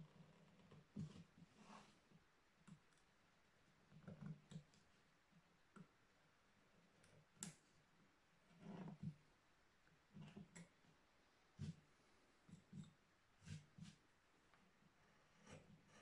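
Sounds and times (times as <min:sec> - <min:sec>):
knife carving wood: 0:15.2 - 0:16.0.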